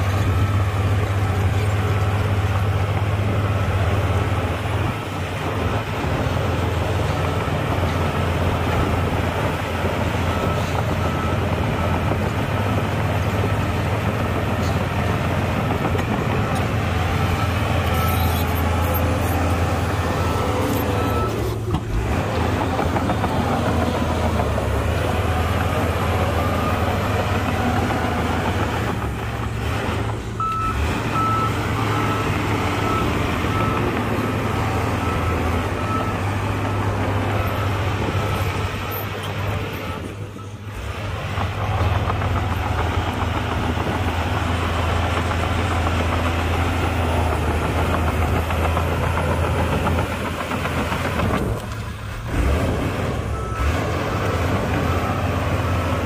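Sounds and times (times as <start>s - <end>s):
heavy diesel machinery drone: 0.0s - 56.0s
reversing alarm beeping: 16.4s - 21.6s, 30.4s - 40.6s.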